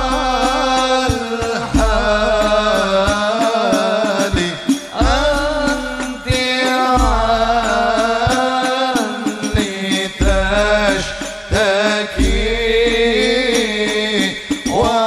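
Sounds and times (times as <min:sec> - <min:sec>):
low drum thumps: 0:00.0 - 0:03.4, 0:04.3 - 0:06.4, 0:07.0 - 0:08.4, 0:09.5 - 0:13.8
man singing into a microphone: 0:00.0 - 0:15.0.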